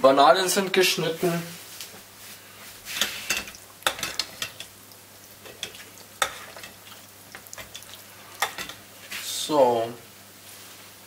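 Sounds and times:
faint steady hiss: 0:00.0 - 0:11.0
spoon stirring melted chocolate: 0:02.9 - 0:08.9.

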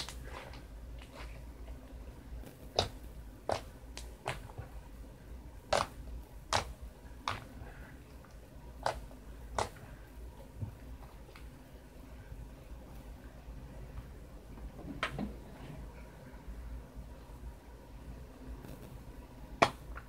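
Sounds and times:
slime squishing: 0:02.6 - 0:04.8, 0:05.7 - 0:08.2, 0:08.8 - 0:10.0.

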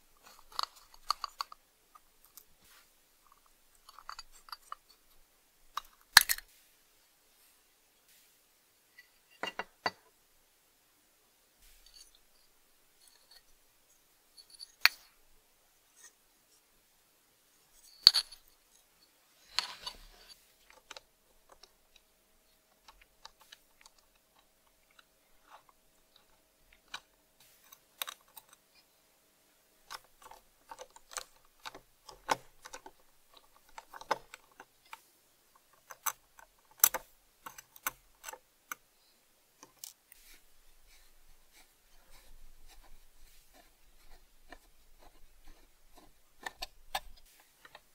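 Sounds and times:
small metal clicks and taps: 0:00.2 - 0:02.5, 0:09.0 - 0:10.0, 0:29.9 - 0:35.0, 0:35.6 - 0:38.9, 0:44.0 - 0:47.9.

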